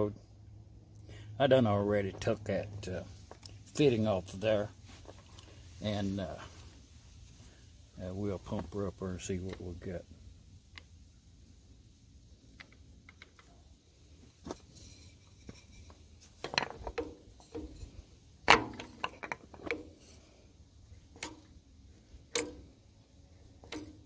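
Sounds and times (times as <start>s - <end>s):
metallic clicks of pump plunger: 15.5s - 20.2s, 21.1s - 21.6s, 22.2s - 22.7s, 23.5s - 24.0s.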